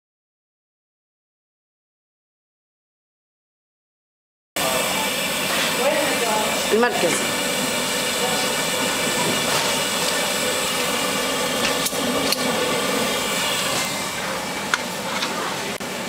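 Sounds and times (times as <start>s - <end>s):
hot oil hissing in a pot: 4.6s - 16.0s.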